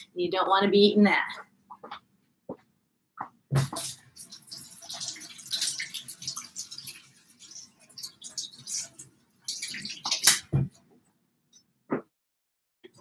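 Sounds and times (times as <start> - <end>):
tap water splashing: 3.5 - 10.8.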